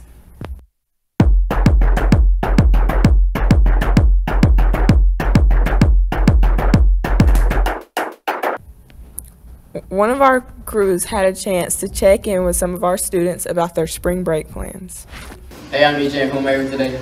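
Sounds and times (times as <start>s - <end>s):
electronic music with drum machine: 1.2s - 8.6s.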